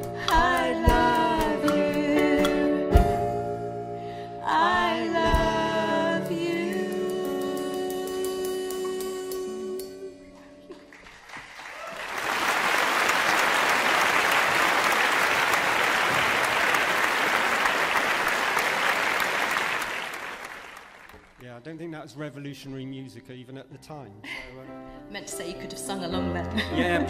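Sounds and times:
audience applauding: 10.8 - 21.4.

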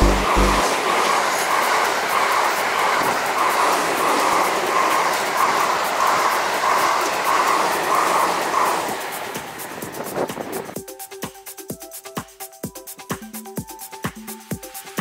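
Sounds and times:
train wheels clicking on rails: 0.0 - 10.8.

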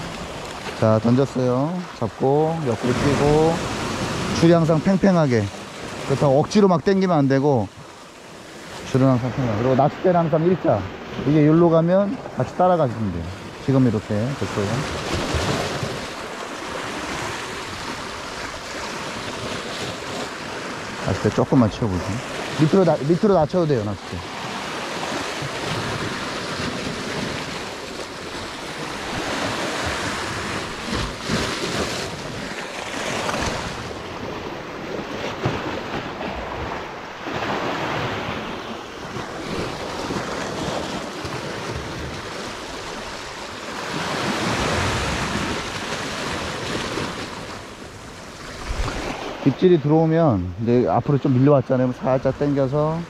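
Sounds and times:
sea waves washing against rocks: 0.0 - 50.8.

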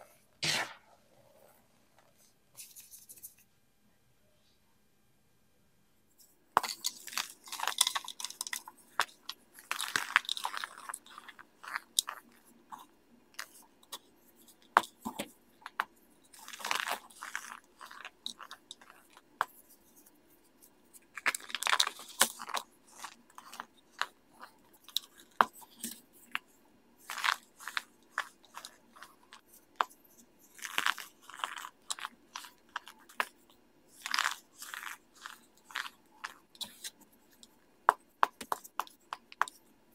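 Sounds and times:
baking soda pucks crunching: 6.6 - 13.6, 16.3 - 19.3, 27.0 - 37.4.

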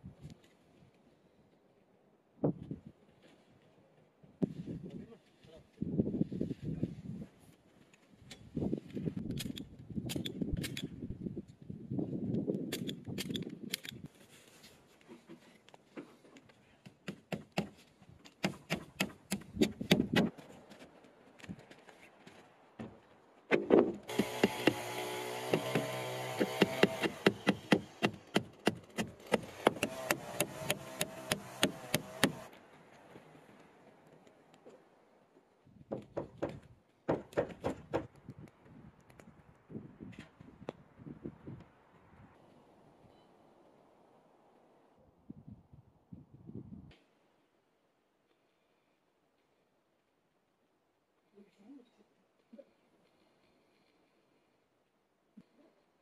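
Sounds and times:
hammering on wood: 18.4 - 20.3, 24.1 - 32.5, 35.9 - 38.1.

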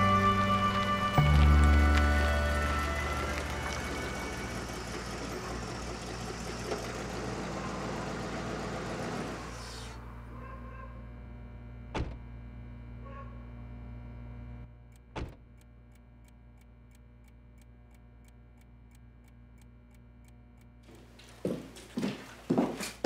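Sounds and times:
steady low hum: 0.0 - 21.8
faint steady ticking: 1.2 - 9.9, 14.6 - 21.5.

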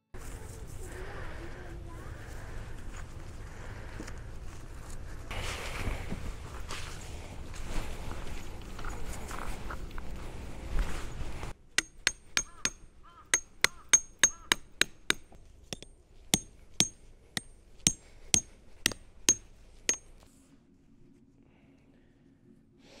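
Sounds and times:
hammer striking steel pegs: 11.8 - 20.2.

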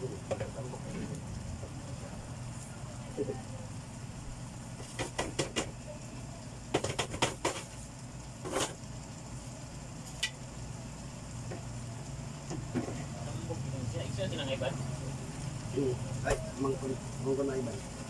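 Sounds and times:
steady low hum: 0.0 - 6.8
sauce simmering with small pops: 0.1 - 2.7, 3.9 - 13.2.

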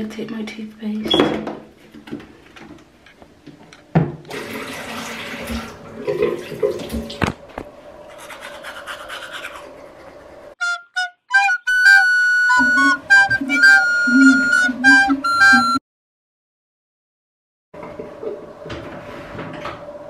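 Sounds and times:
teeth brushing: 8.1 - 10.2
flute-like melody: 10.6 - 15.8.

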